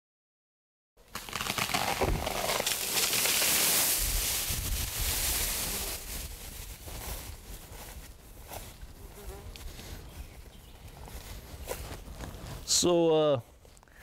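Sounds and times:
branches crashing and rustling: 1.0s - 8.0s
tree falling thuds: 1.1s - 4.8s.

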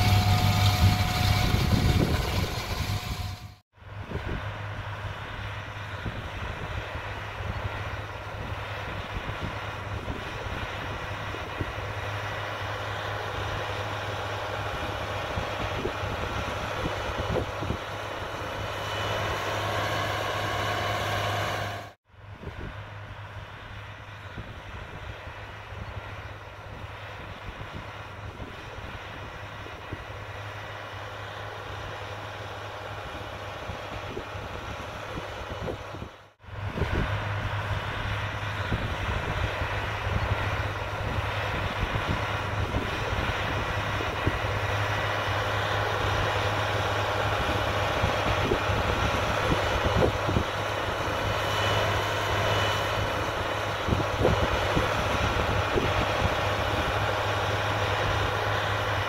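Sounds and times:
machine hum: 0.0s - 6.2s, 10.3s - 22.0s.

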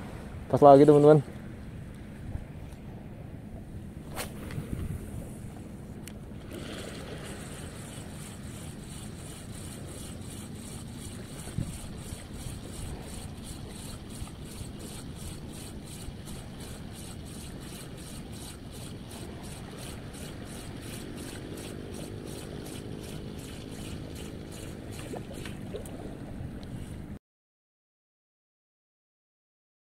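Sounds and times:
wind rumble on microphone: 0.0s - 7.9s, 11.2s - 15.6s
low steady hum: 0.0s - 27.2s
fishing reel ticking: 6.4s - 25.6s.

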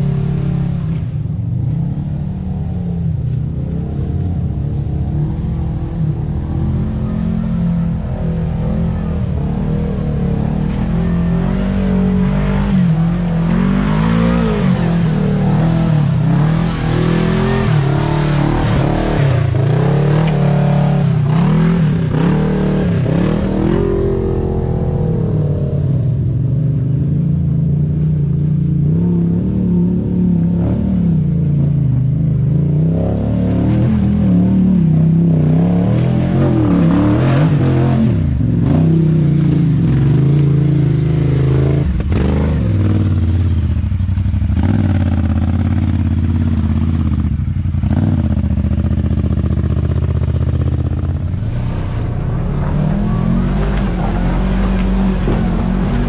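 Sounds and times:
engine revving: 3.5s - 26.3s, 28.8s - 56.0s.

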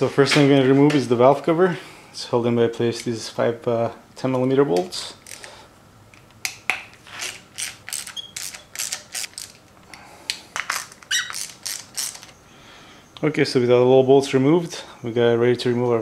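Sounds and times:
hand ratchet clicking: 7.2s - 9.6s, 10.6s - 12.3s.

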